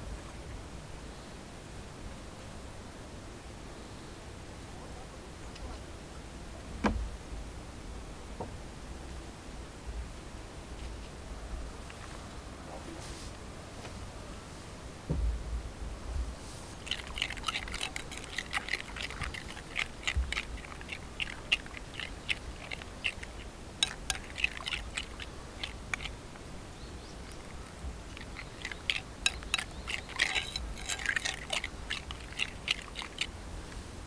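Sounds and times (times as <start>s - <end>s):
metal spoon stirring batter in bowl: 16.8s - 26.2s, 27.3s - 33.3s.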